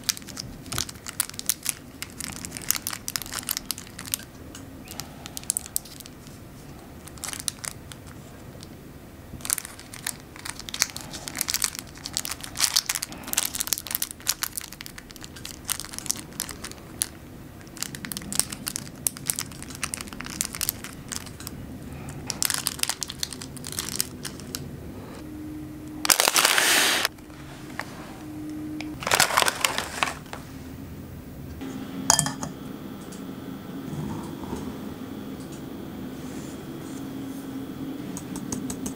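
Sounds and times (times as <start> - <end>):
paper crinkling: 0.0 - 4.3, 4.9 - 8.7, 9.4 - 24.6, 26.0 - 27.9, 29.0 - 30.4.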